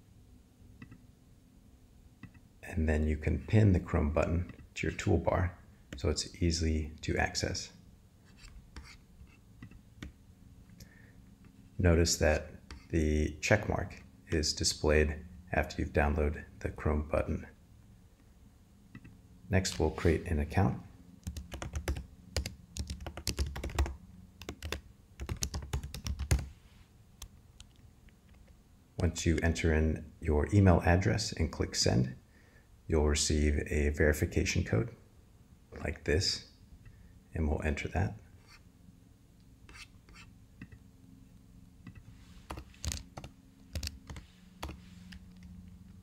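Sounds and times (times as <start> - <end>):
typing on a keyboard: 21.2 - 26.5, 42.5 - 44.8.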